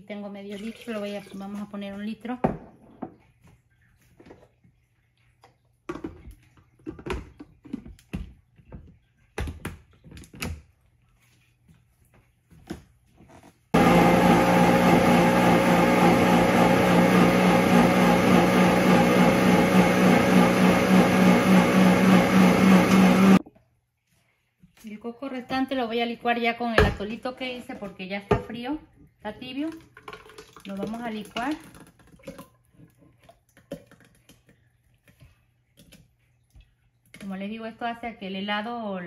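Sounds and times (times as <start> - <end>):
blender motor grinding: 13.8 - 23.4.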